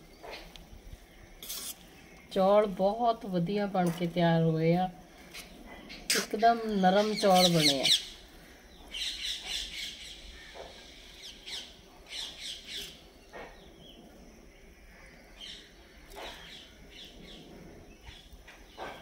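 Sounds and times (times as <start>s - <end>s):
small birds chirping: 0.0s - 19.0s
spoon scraping iron pan: 1.4s - 1.9s, 5.3s - 6.4s.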